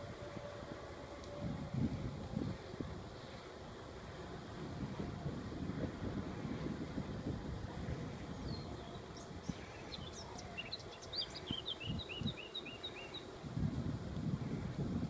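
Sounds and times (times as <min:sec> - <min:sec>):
wind rumble on microphone: 0:00.0 - 0:15.0
songbird singing: 0:07.2 - 0:13.6.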